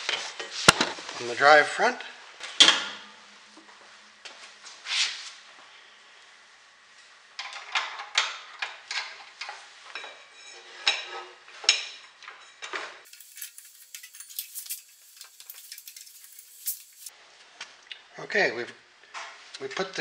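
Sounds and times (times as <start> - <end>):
metallic clinks and knocks: 13.1 - 17.1.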